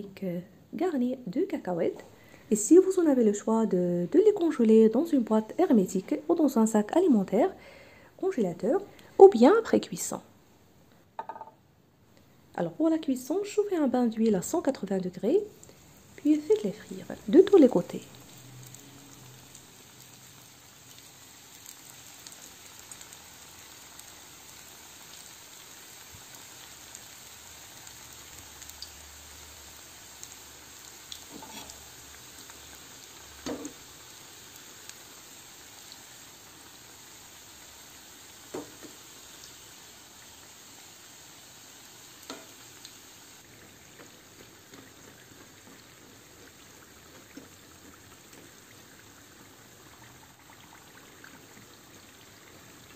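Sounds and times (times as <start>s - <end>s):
utensils knocking on pan: 11.2s - 11.6s
food sizzling in hot oil: 13.1s - 52.9s.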